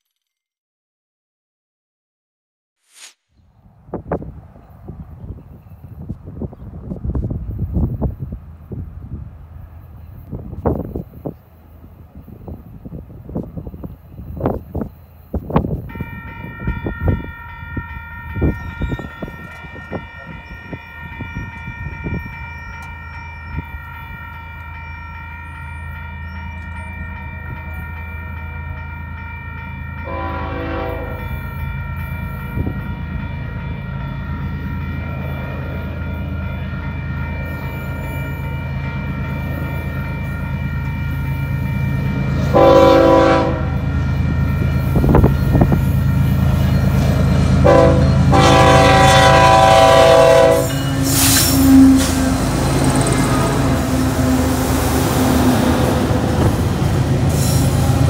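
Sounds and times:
diesel locomotive rumble: 3.8 - 58.0
crossing bell ringing: 9.6 - 58.0
train horn blasts: 30.0 - 31.3, 42.4 - 45.7, 47.6 - 54.6.

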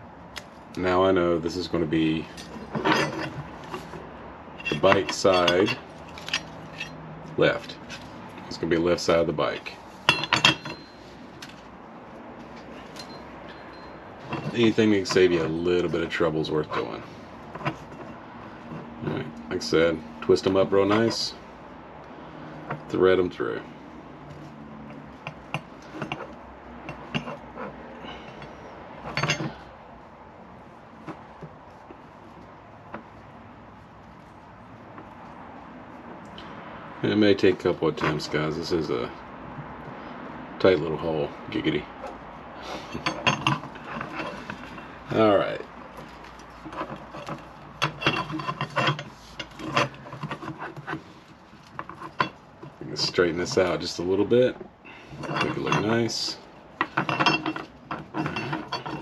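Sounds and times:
metal bracket and wires clinking: 1.5 - 11.7, 12.4 - 21.4, 24.3 - 29.7, 42.8 - 59.0.

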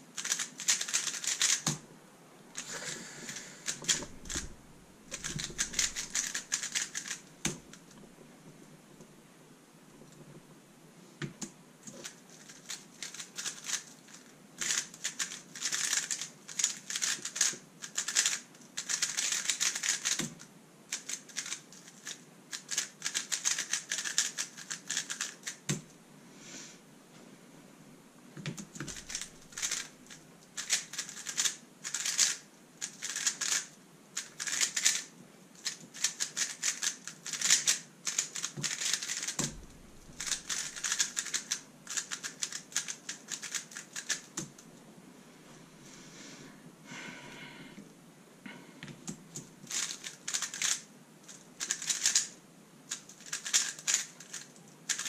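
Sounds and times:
puzzle cube clicking: 0.2 - 1.8, 5.1 - 7.9, 11.9 - 25.8, 28.4 - 30.0, 30.6 - 44.6, 49.0 - 55.0.

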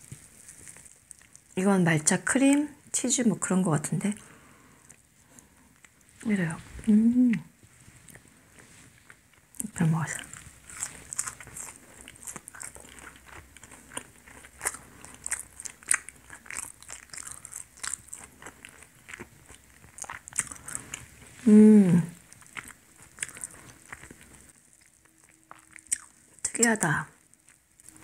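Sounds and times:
chewing and mouth sounds: 0.0 - 1.6, 8.0 - 21.4, 22.2 - 28.0
person humming: 6.9 - 7.5, 21.4 - 22.2.

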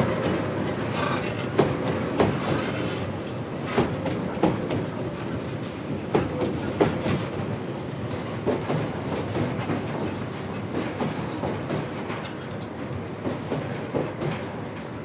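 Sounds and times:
train wagons rumbling past: 0.0 - 15.0
wheels knocking on rail joints: 0.1 - 4.9.

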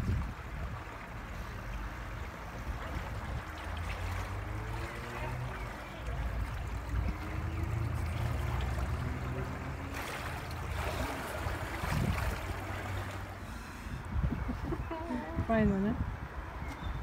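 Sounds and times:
wind buffeting microphone: 0.0 - 4.5, 9.8 - 17.0
water lapping: 0.0 - 16.0
faint voices: 4.2 - 11.7.

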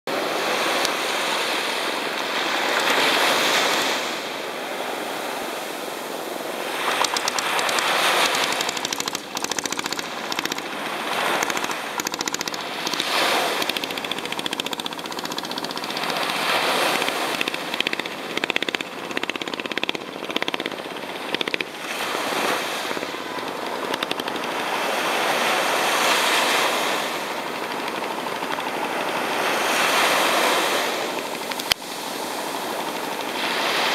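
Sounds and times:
waves washing onto sandy beach: 0.1 - 33.9
boat engine popping: 6.7 - 33.9.

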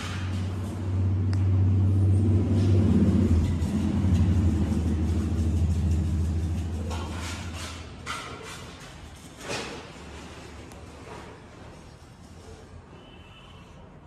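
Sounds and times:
low engine rumble: 0.0 - 7.8.

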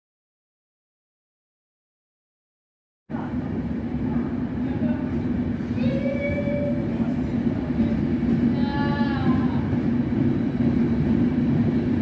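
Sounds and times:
train wheels rumbling on rails: 3.1 - 12.0.

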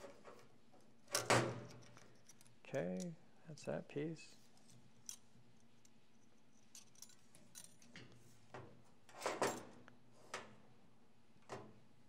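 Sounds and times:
metal parts clicking and clinking: 1.1 - 3.2, 5.0 - 8.2.

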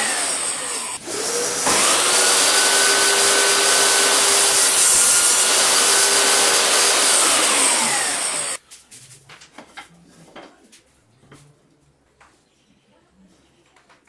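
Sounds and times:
table saw spinning down: 0.0 - 8.6.

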